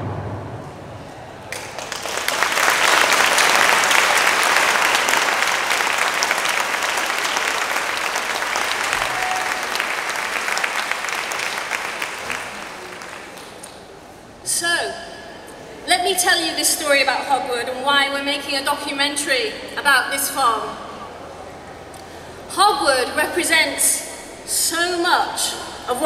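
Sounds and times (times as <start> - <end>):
audience applauding: 1.5 - 14.0.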